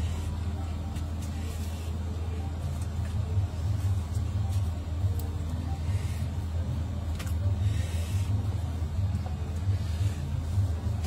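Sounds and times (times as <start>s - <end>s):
low machine hum: 0.0s - 11.0s.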